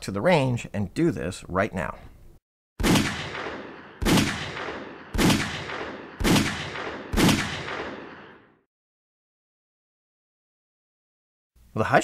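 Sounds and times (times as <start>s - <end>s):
pistol shots: 2.8s - 8.6s.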